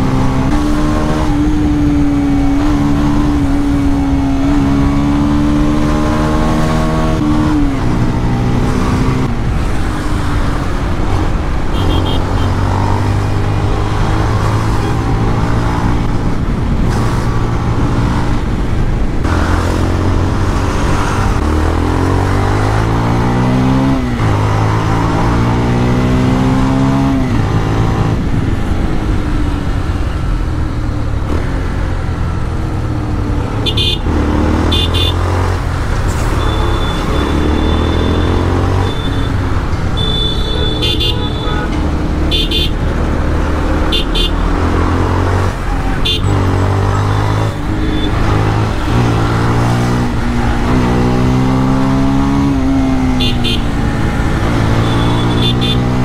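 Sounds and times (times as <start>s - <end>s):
motorcycle engine accelerating: 0.0s - 18.5s, 41.8s - 56.0s
horn honks: 11.7s - 12.6s, 33.6s - 35.2s, 36.3s - 42.8s, 43.9s - 44.4s, 45.8s - 46.5s, 53.1s - 53.8s, 54.6s - 56.0s.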